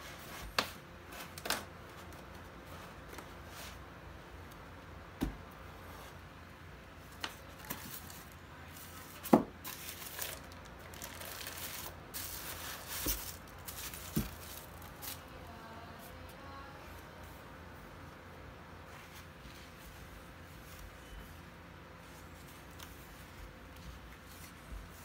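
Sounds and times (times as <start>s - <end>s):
plastic packaging crinkling: 7.2s - 15.3s.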